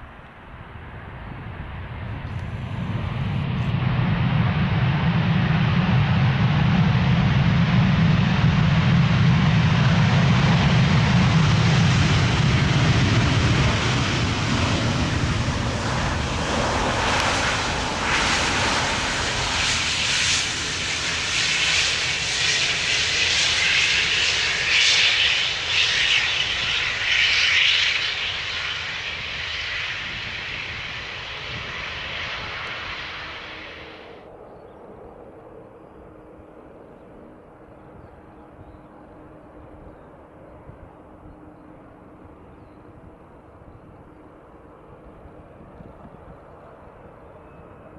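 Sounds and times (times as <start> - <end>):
jet engines roaring: 0.0 - 38.3.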